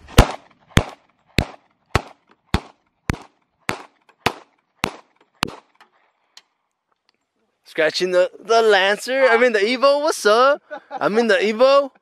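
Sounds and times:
pistol shots: 0:00.0 - 0:05.8.

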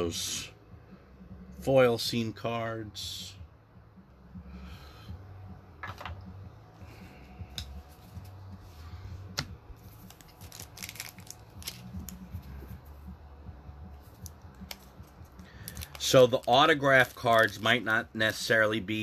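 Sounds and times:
low steady hum: 0:00.0 - 0:19.0
cards clicking and rustling: 0:09.4 - 0:12.7, 0:14.0 - 0:17.8.

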